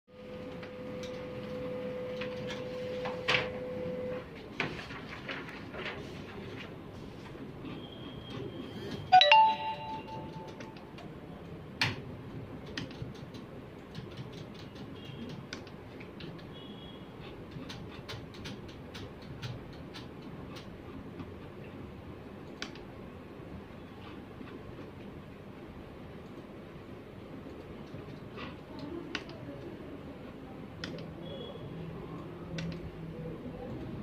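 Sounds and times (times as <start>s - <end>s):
steady room hum: 0.1s - 34.0s
faint short high beeps: 9.1s - 10.8s
electronic chime: 9.1s - 10.9s.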